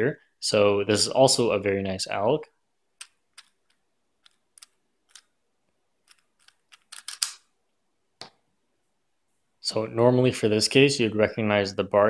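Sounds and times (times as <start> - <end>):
puzzle cube plastic clicks: 3.0 - 5.3, 6.0 - 7.4.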